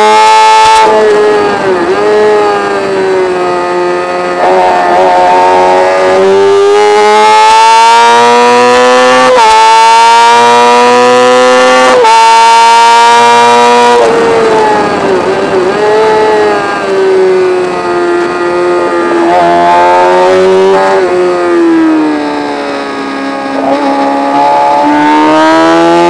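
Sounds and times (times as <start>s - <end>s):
racing motorcycle engine accelerating: 0.0s - 26.0s
motorcycle gear upshifts: 22.7s - 26.0s.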